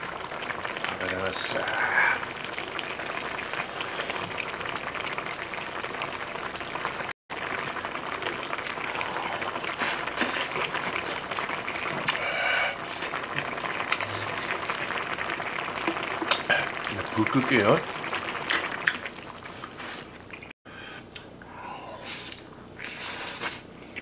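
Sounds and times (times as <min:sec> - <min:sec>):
stew bubbling in a pot: 0:00.0 - 0:24.0
eating mouth sounds: 0:22.1 - 0:24.0.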